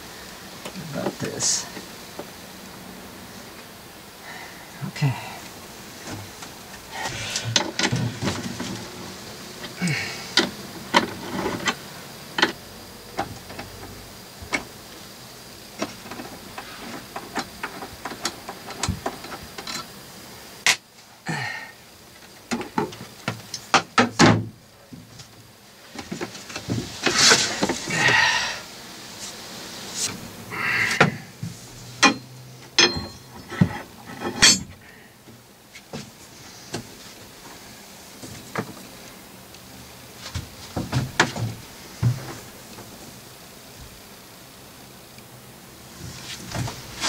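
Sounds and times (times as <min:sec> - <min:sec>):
scraping shuffle: 0:25.9 - 0:28.1, 0:46.0 - 0:47.0.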